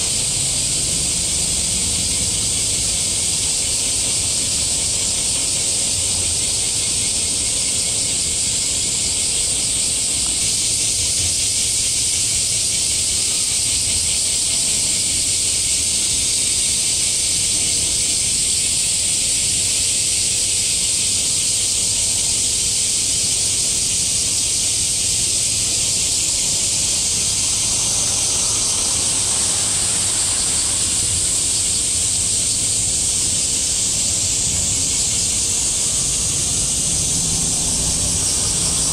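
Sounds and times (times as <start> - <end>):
loud high-pitched hiss: 0.0 - 38.9.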